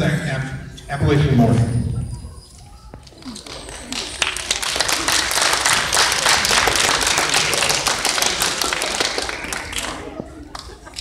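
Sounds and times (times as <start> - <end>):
audience applauding: 3.1 - 11.0.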